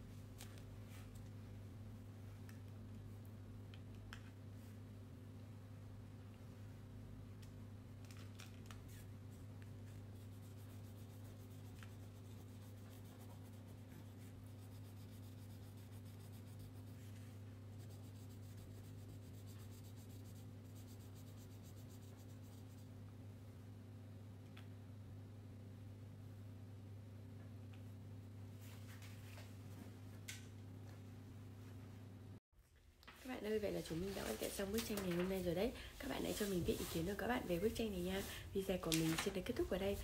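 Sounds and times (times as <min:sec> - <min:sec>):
steady low hum: 0:00.0 - 0:40.0
crayon scribbling on paper: 0:09.8 - 0:17.0, 0:17.7 - 0:22.8.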